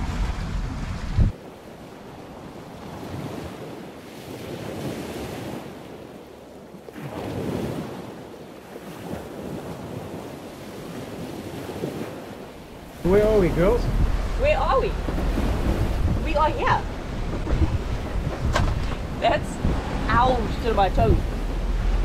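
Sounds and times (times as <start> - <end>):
wind buffeting microphone: 0.0 - 1.5, 8.9 - 22.0
sea water rushing past hull: 0.0 - 22.0.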